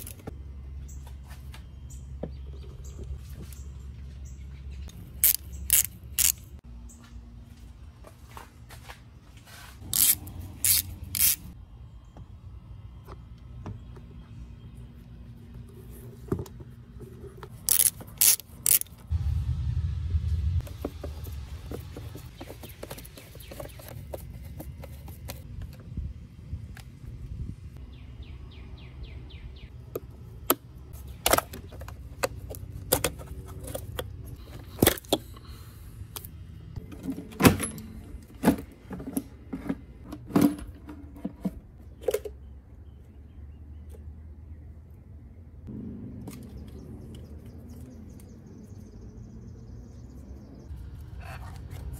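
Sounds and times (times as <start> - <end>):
screwdriver loosening hose clamp: 9.9 - 11.4, 17.6 - 19.0
short low rumble: 19.1 - 22.2.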